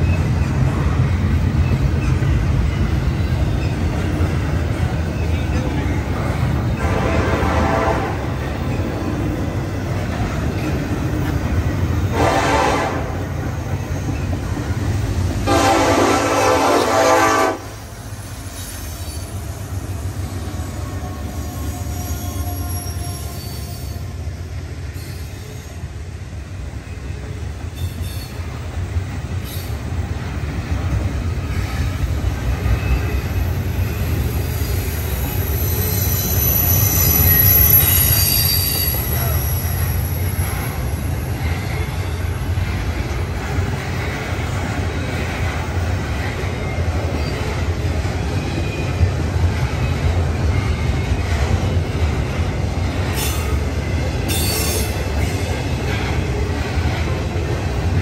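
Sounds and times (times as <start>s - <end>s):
freight train rumbling and clattering: 0.0s - 58.0s
locomotive air horn: 6.8s - 8.3s, 12.1s - 13.3s, 15.4s - 17.9s
high wheel squeal: 18.0s - 24.3s, 27.8s - 28.5s, 32.6s - 42.4s, 54.3s - 55.7s.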